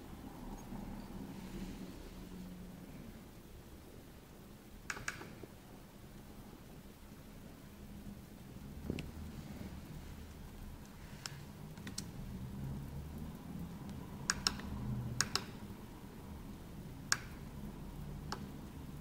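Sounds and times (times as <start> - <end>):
low steady hum: 0.0 - 19.0
laptop key and touchpad clicks: 4.9 - 5.4, 14.3 - 15.6.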